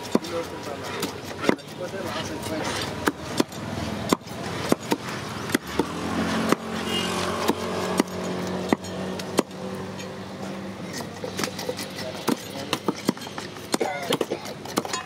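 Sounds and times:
knife scraping fish scales: 10.8s - 13.7s.

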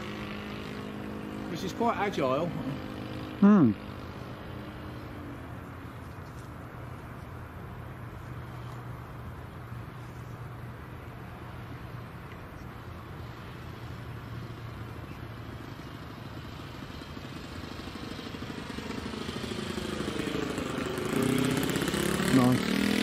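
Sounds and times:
model plane engine running: 0.0s - 6.0s, 13.1s - 23.0s.

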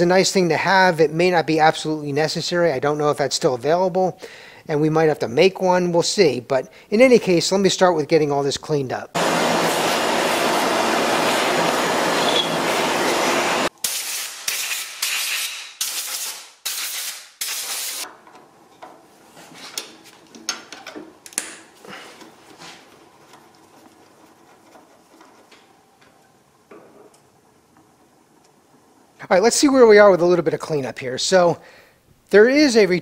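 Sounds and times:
compressed air blasts: 9.2s - 18.0s.

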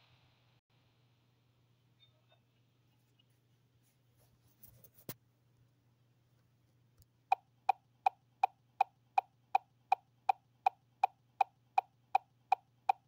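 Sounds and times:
faint low hum: 0.0s - 12.9s
steady ticking: 7.3s - 13.0s.

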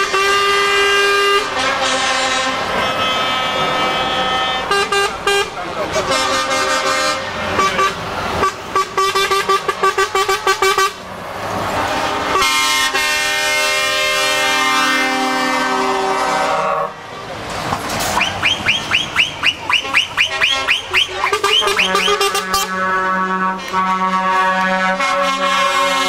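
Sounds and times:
truck air horn toots: 0.0s - 11.1s, 12.0s - 17.0s, 18.1s - 26.0s
trucks driving past: 0.0s - 26.0s.

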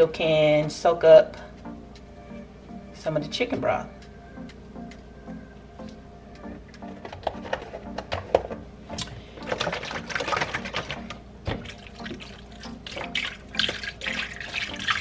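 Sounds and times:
broth splashing into pot: 11.6s - 15.0s.

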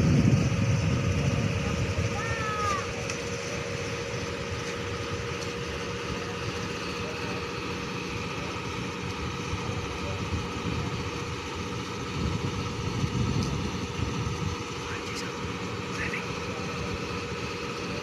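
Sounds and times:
boat diesel engine droning: 0.0s - 18.0s.

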